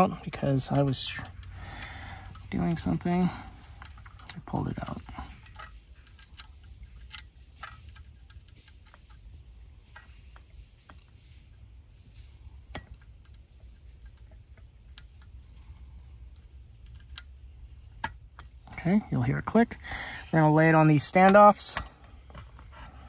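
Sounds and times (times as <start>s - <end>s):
faint low hum: 0.0s - 23.0s.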